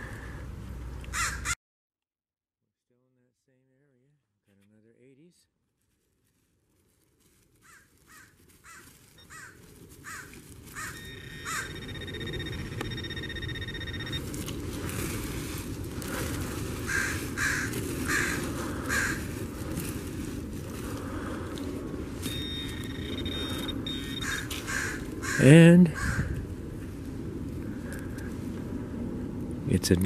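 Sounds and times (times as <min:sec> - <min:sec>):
bird calling: 0:07.7 - 0:14.2, 0:22.2 - 0:26.3
metal detector steady tone: 0:10.8 - 0:14.6, 0:22.2 - 0:24.6
steady low rumble: 0:25.9 - 0:30.0.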